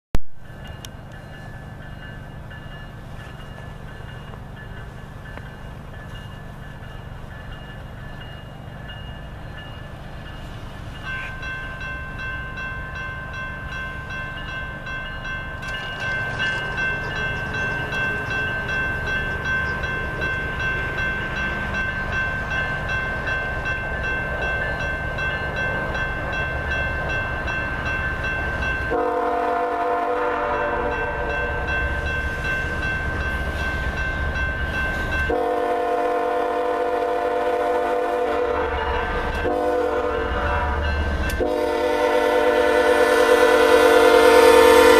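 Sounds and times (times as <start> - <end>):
train rumble: 0.3 - 44.9
steady high ringing: 0.4 - 36.0
locomotive horn blasts: 28.9 - 31.7, 35.3 - 44.9.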